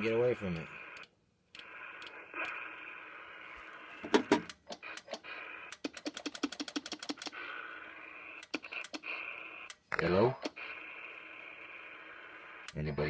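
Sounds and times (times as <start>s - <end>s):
radio static hiss: 0.0s - 6.0s, 7.2s - 13.0s.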